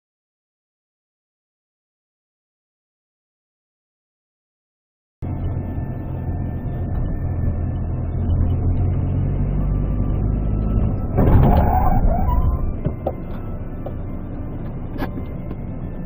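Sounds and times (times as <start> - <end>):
car engine and road hum: 5.2 - 16.0.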